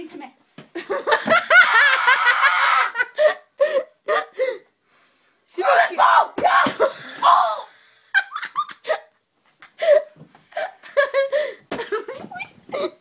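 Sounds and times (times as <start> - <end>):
people laughing: 0.8 - 3.2.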